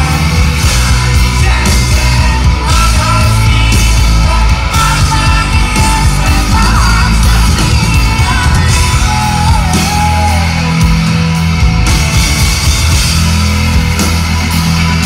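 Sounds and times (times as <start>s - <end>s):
live rock band: 0.0s - 15.0s
woman singing: 1.1s - 10.6s.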